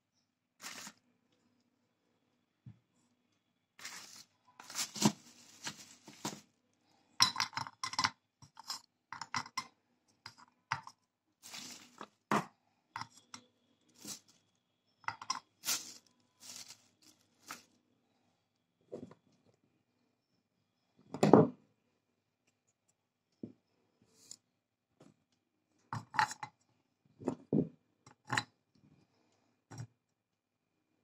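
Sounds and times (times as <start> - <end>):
sticks clinking into clay cup: 7.2 - 11.0, 15.0 - 16.8.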